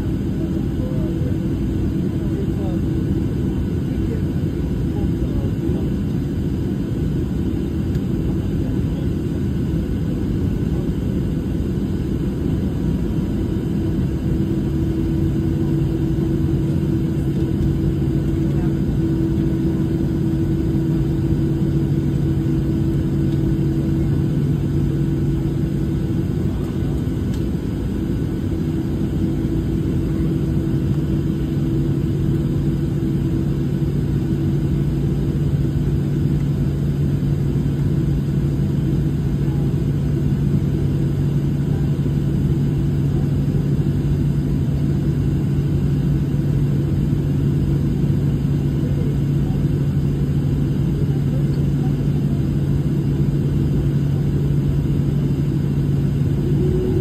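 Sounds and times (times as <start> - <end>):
airplane cabin low hum: 0.0 - 57.0
higher engine hum: 56.1 - 57.0.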